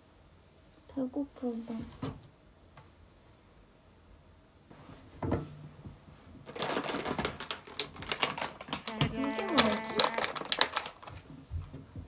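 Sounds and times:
plastic snack packet crinkling: 6.4s - 11.3s.

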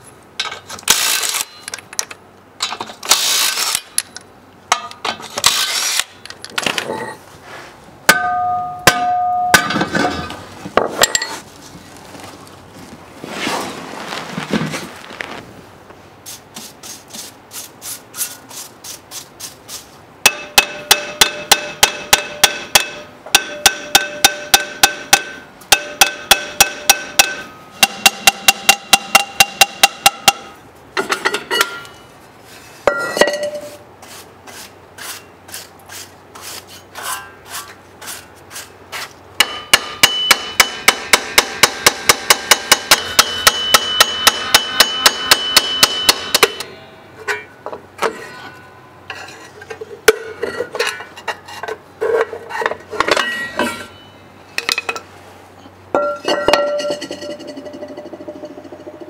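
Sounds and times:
hammer striking metal: 8.1s - 10.4s, 20.2s - 32.0s, 39.4s - 48.8s, 56.0s - 57.8s
scraping: 9.7s - 16.0s.

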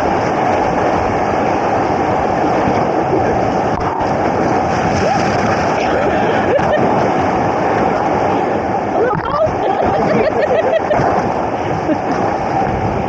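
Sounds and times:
whitewater rapids rushing: 0.0s - 13.0s
voices: 9.0s - 10.6s.

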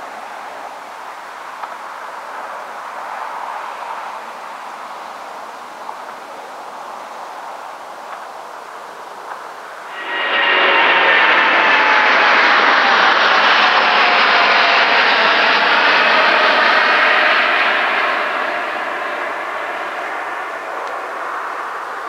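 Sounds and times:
jet engines running: 0.0s - 22.0s
high engine whine: 9.0s - 22.0s.

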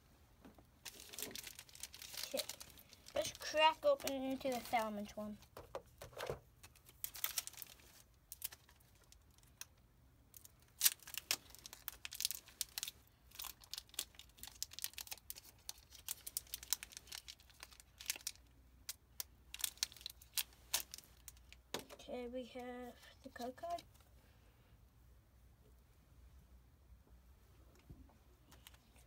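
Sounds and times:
cardboard and plastic crinkling: 0.8s - 9.6s, 10.4s - 21.9s.

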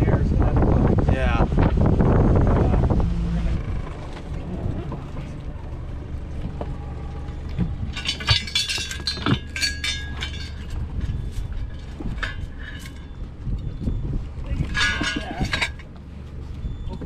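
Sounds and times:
boat motor running: 0.0s - 17.0s
metallic clinking and rattling: 6.3s - 13.8s, 14.5s - 16.3s.

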